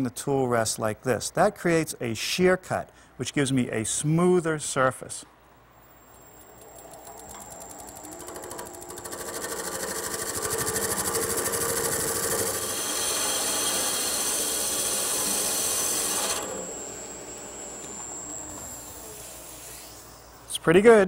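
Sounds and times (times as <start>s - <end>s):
wood lathe running: 6.6s - 20.2s
gouge shear-cutting wood on lathe: 8.2s - 19.9s.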